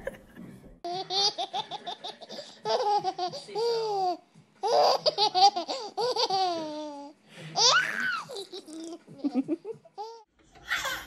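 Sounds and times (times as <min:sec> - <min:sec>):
baby laughing: 0:00.9 - 0:11.0.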